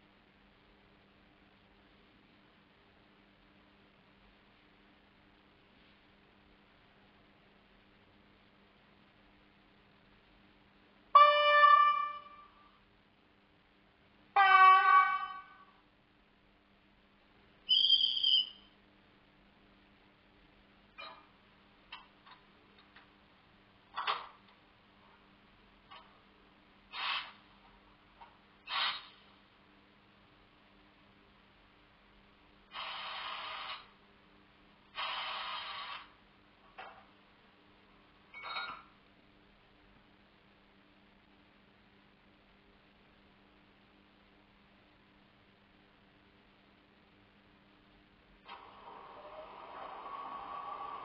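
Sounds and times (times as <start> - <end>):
faint steady hum: 0.0 - 51.0
locomotive horn from small speaker: 11.1 - 12.6, 14.4 - 15.8
high-pitched whistle tone: 17.7 - 18.8
locomotive sound hisses: 26.9 - 27.4, 28.7 - 29.2, 32.7 - 33.9, 35.0 - 36.2.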